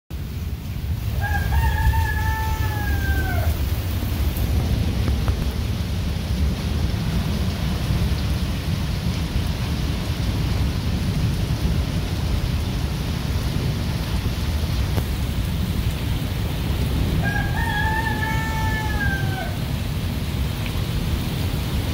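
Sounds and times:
heavy rain on pavement: 0.1s - 21.9s
rooster crowing: 1.2s - 3.8s, 17.2s - 19.7s.

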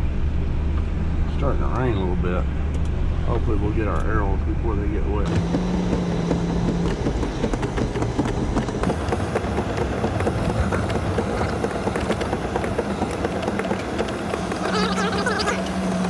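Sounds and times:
vehicle rumble: 0.0s - 16.0s
rattles and knocks of vehicle body: 5.2s - 16.0s.

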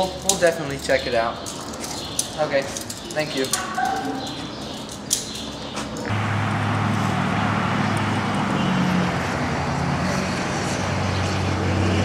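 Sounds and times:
road traffic noise: 0.0s - 12.0s
low engine hum: 6.0s - 12.0s.

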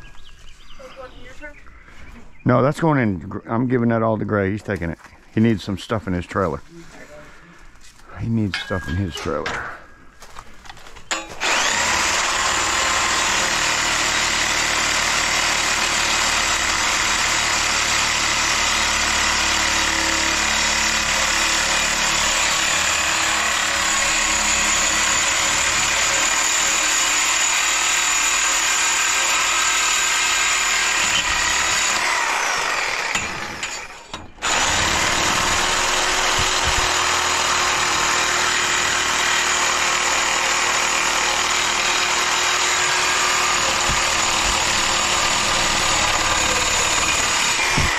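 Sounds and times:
power tool running: 11.1s - 47.9s.

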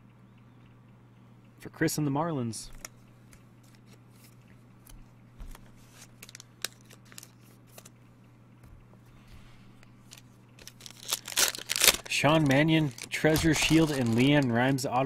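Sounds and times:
low electrical hum: 0.0s - 15.0s
cards and foil packs handled: 3.6s - 7.9s, 9.8s - 14.9s.

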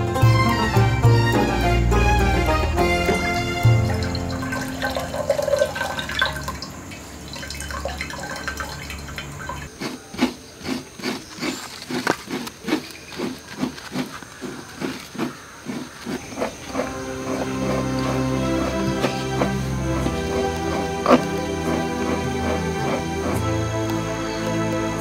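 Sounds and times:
liquid pouring into a glass jar: 3.9s - 9.7s
soft rhythmic strokes: 9.7s - 25.0s.

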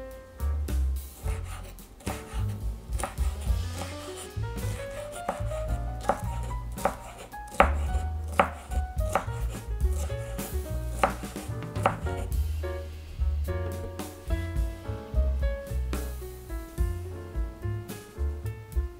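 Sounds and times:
knife chopping on wooden board: 1.2s - 12.3s.

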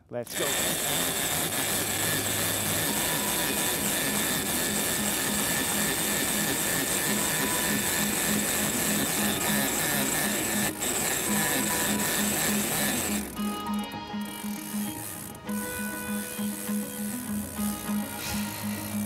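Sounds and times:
fishing reel whirring: 0.3s - 19.0s.

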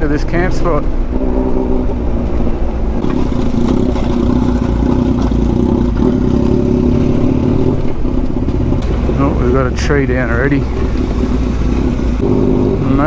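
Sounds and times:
motorcycle engine running: 0.9s - 13.0s.

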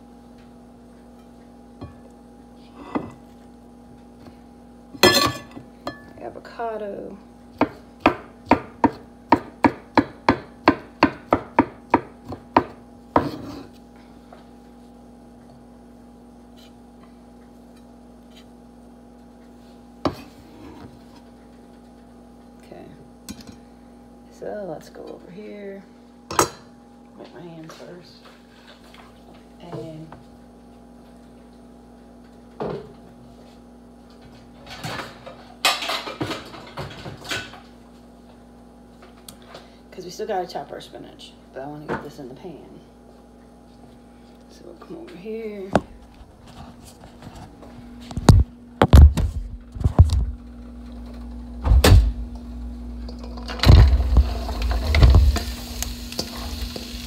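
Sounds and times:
faint appliance hum: 0.0s - 57.0s
knife chopping on wooden board: 7.6s - 13.6s
kitchen clatters and rustling: 34.2s - 37.8s.

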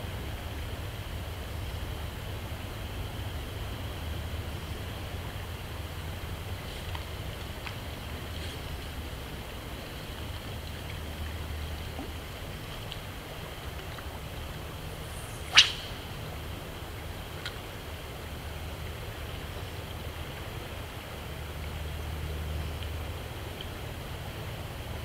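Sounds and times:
fishing rod swishing: 15.2s - 16.0s.

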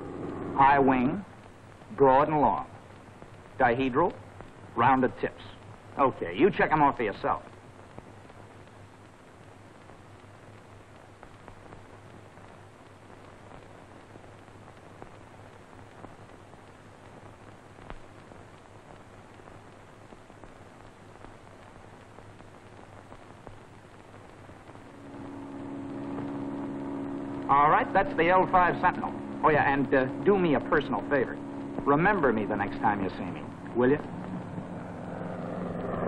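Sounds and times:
low multi-tone drone: 0.0s - 2.8s, 24.8s - 36.0s
low hum: 0.0s - 7.4s, 22.7s - 36.0s
film soundtrack hiss and crackle: 0.0s - 36.0s.

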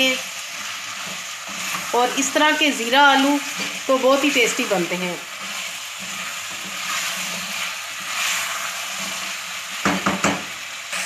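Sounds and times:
potatoes sizzling in oil: 0.0s - 11.0s
wooden spoon scraping pot: 5.4s - 9.4s.

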